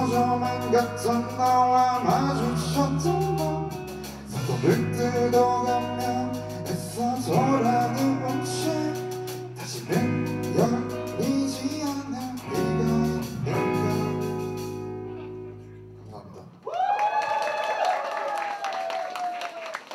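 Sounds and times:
drums: 0.0 - 15.1
bass guitar: 0.0 - 16.6
electric guitars: 0.0 - 16.6.

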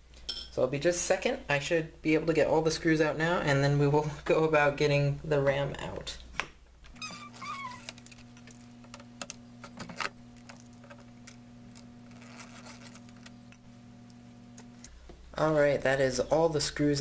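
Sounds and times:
brief squeak: 7.0 - 7.9
steady low hum: 7.0 - 16.9.

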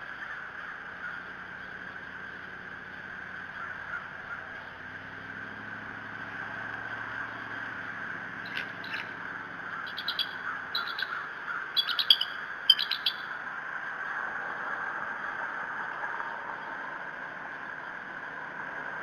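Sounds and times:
steady background hiss: 0.0 - 19.0
eagle piping calls: 8.4 - 13.4.

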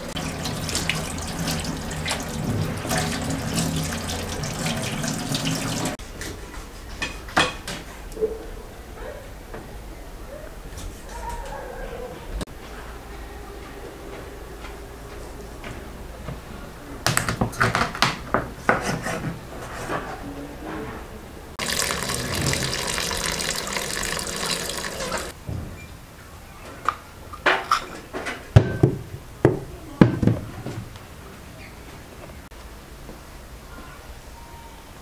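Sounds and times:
water pouring into a bowl: 0.0 - 6.0, 21.6 - 25.4.

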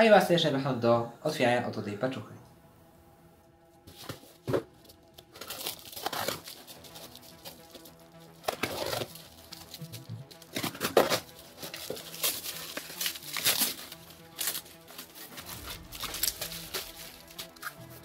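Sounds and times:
faint background music: 0.0 - 18.0
plastic film crinkling: 3.8 - 18.0
scissors cutting plastic film: 4.9 - 18.0.

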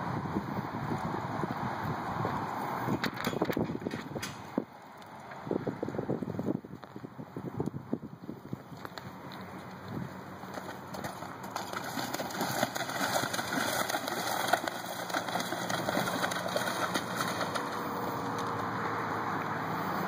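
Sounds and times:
hooves splashing in water: 8.6 - 20.0.

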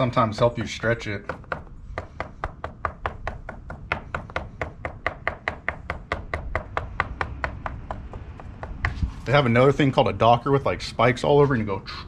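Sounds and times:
fork tapping on wooden board: 1.3 - 9.0.

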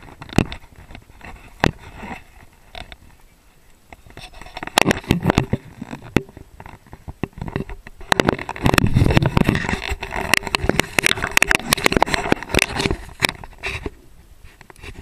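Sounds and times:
microphone handling knocks and scrapes: 0.0 - 3.0, 4.0 - 15.0
wind on microphone: 4.1 - 15.0.

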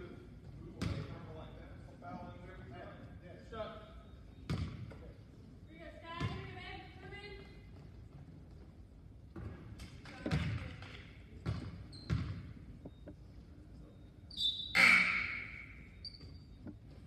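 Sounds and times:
basketball bouncing on hardwood floor: 10.2 - 13.0.

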